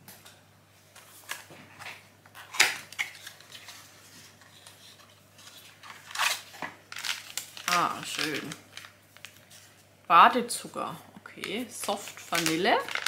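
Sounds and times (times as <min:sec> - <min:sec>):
paper packaging rustling: 0:00.9 - 0:09.9, 0:11.5 - 0:13.0.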